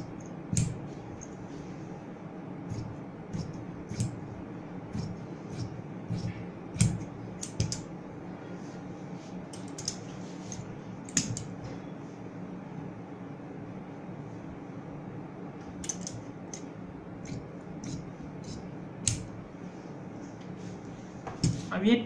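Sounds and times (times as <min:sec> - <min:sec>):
shears snipping fabric: 0:02.7 - 0:04.2, 0:04.9 - 0:07.8.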